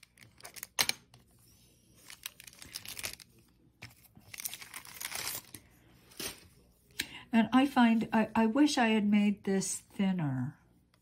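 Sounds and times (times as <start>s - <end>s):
paper crinkling and rustling: 0.0s - 6.6s.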